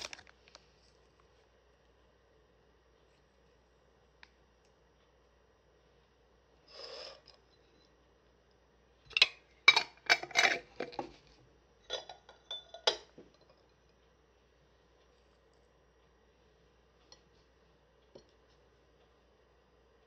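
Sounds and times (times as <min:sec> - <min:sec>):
dishes and utensils clinking: 0:09.1 - 0:11.2, 0:11.8 - 0:13.8.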